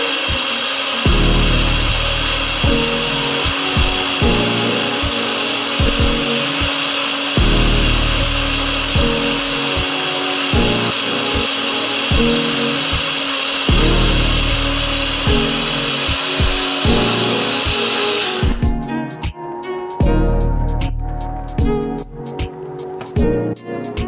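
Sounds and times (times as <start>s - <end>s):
blender motor whining: 0.0s - 18.9s.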